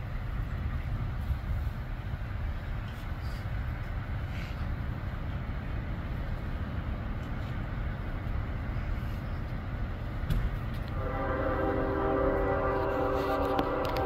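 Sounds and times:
low street rumble: 0:00.0 - 0:14.0
sustained chord of steady tones: 0:11.0 - 0:14.0.

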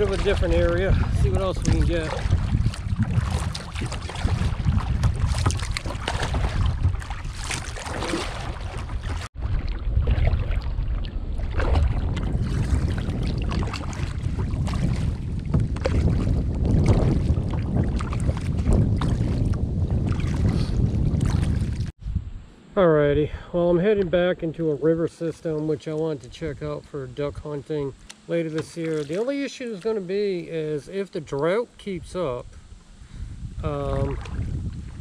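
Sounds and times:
paddle strokes splashing: 0:00.0 - 0:21.9, 0:28.0 - 0:31.3
wind buffeting microphone: 0:00.0 - 0:24.4, 0:31.9 - 0:35.0.

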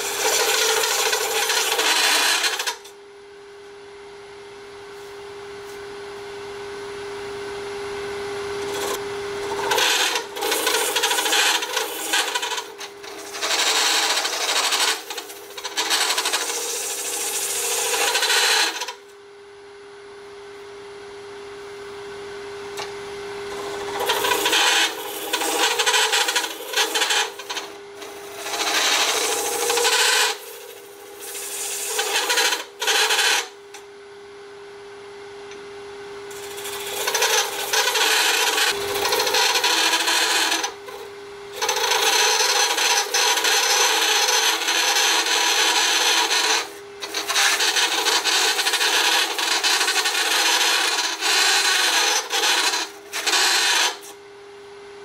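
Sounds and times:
lathe humming: 0:00.0 - 0:02.9, 0:08.2 - 0:19.0, 0:22.8 - 0:33.6, 0:36.3 - 0:54.1
lathe tool scraping resin: 0:00.0 - 0:02.9, 0:08.6 - 0:19.0, 0:23.5 - 0:33.6, 0:36.3 - 0:54.1.

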